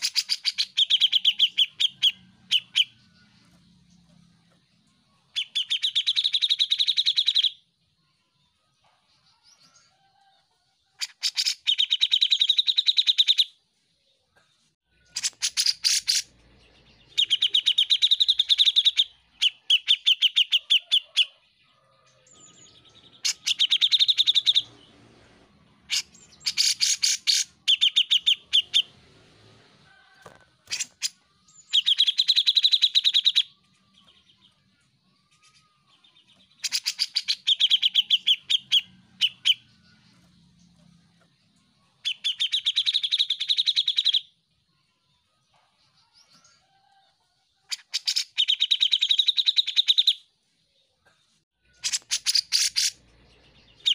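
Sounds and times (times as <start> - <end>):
bird singing rapid repeated notes: 0.0 - 7.7, 11.0 - 13.6, 14.9 - 21.4, 22.3 - 24.9, 25.8 - 29.0, 30.7 - 44.4, 47.7 - 50.3, 51.6 - 53.9.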